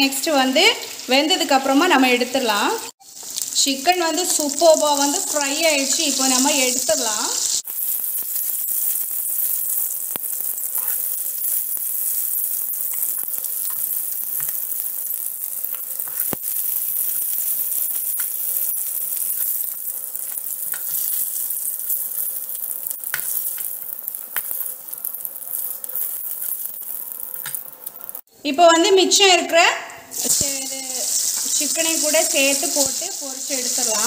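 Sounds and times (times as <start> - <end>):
chicken sizzling in hot oil: 0.0 - 28.3, 30.1 - 34.0
steel spoon stirring and knocking pan: 9.3 - 24.7.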